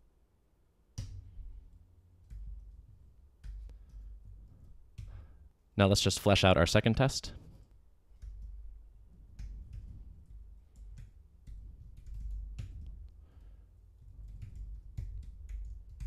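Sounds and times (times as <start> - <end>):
typing on computer keyboard: 8.1 - 13.1, 14.0 - 16.0.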